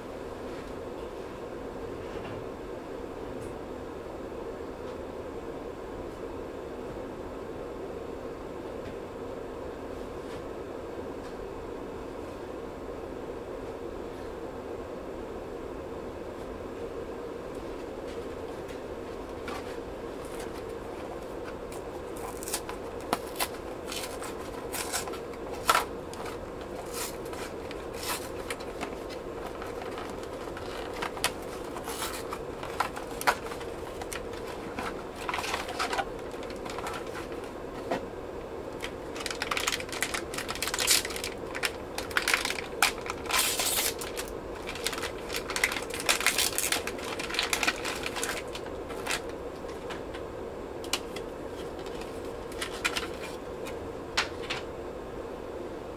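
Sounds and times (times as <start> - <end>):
printer hum: 0.0 - 55.9
plastic parts clicking and rattling: 23.9 - 37.3, 38.8 - 49.9.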